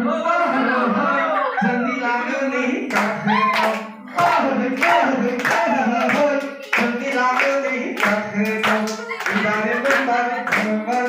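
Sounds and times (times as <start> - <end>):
person singing: 0.0 - 11.0
group clapping in time: 2.9 - 11.0.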